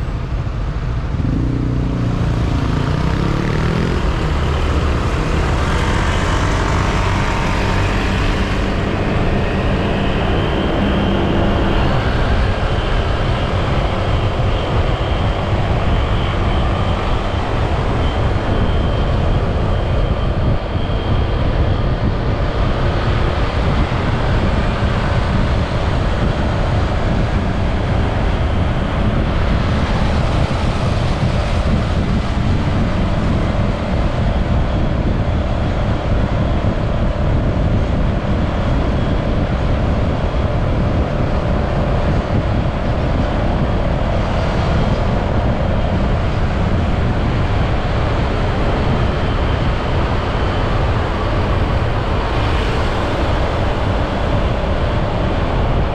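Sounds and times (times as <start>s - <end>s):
road and wind noise: 0.0s - 55.9s
motorcycle engine running: 0.3s - 15.5s.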